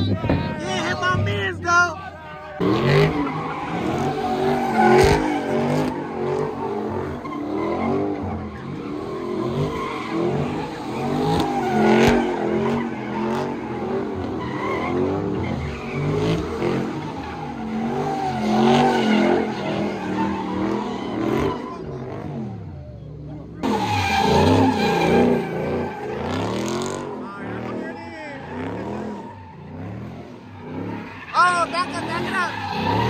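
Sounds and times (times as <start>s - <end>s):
tyres squealing: 0.0s - 22.5s, 23.6s - 33.0s
car engine revving: 0.0s - 33.0s.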